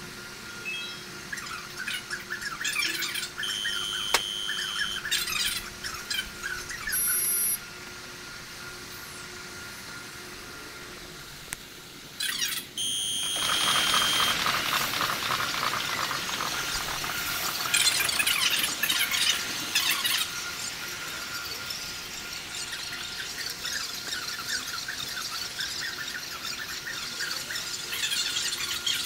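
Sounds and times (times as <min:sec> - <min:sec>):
short steady tone: 0:03.4 - 0:05.0, 0:12.8 - 0:14.4.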